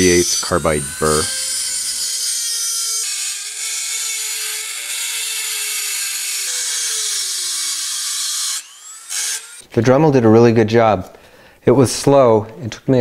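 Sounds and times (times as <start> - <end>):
rotary tool whine: 0.0 - 9.6.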